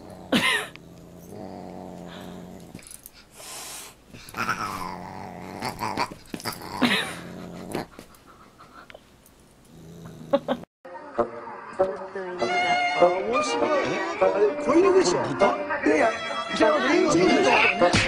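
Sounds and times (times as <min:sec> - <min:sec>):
dog growling: 0:00.0 - 0:03.2, 0:04.2 - 0:08.3, 0:09.6 - 0:10.7.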